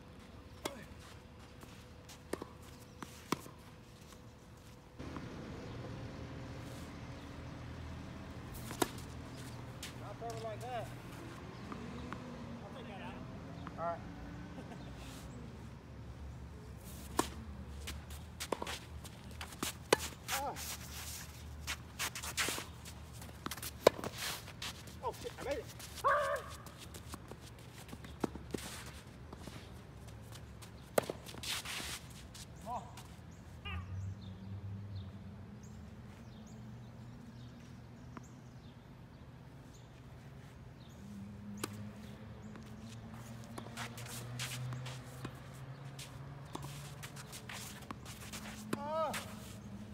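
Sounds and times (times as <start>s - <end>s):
tennis ball bounces: 5.0s - 6.0s, 8.4s - 10.6s, 11.5s - 12.4s, 23.4s - 24.1s, 30.7s - 31.5s, 41.4s - 49.6s
racket hitting tennis ball: 8.5s - 10.4s, 23.4s - 24.2s.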